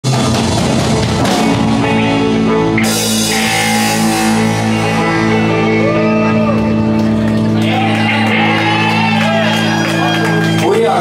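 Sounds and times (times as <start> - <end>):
rock band playing: 0.0 - 11.0
sustained guitar chord: 0.9 - 7.6.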